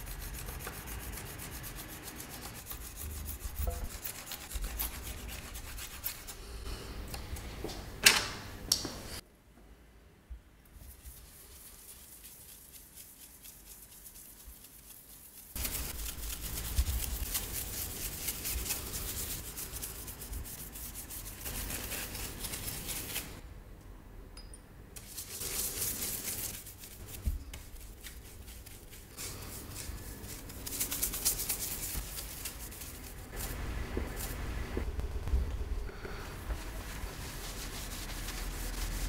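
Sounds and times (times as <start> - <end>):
drawing tool scrubbing paper: 0.0 - 6.6, 10.9 - 23.4, 36.6 - 39.0.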